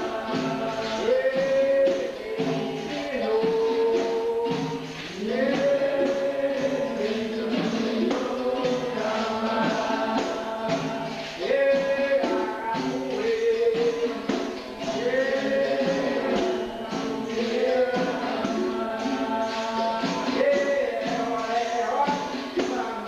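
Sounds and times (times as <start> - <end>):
berimbau: 0.0 - 23.0
person singing: 0.0 - 23.0
tambourine drums: 0.0 - 23.0.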